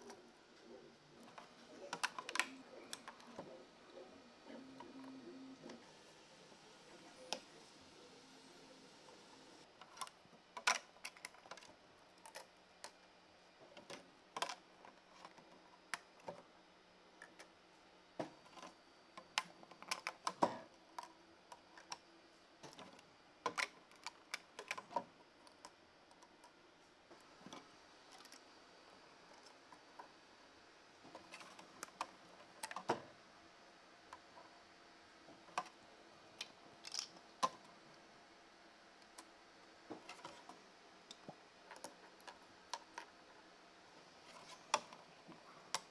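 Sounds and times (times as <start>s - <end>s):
plastic parts clicking on steel sheet: 9.8s - 13.0s.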